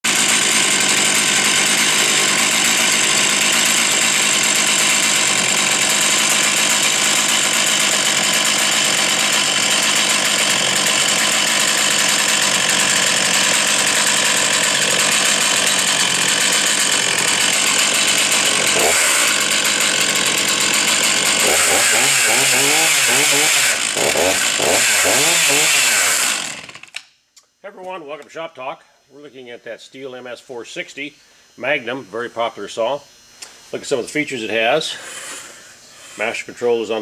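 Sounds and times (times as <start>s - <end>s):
chainsaw running: 0.0s - 27.0s.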